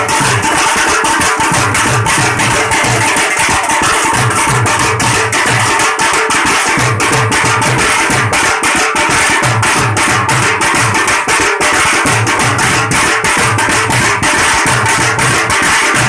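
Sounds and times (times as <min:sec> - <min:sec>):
drums playing fast rhythm: 0:00.0 - 0:16.0.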